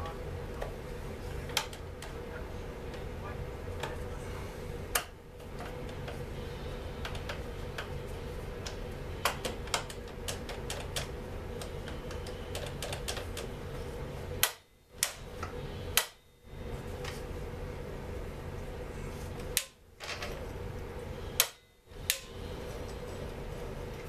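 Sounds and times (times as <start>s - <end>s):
steady low hum: 0.0s - 24.0s
hand tools clicking and tapping: 7.0s - 7.9s, 8.6s - 13.5s.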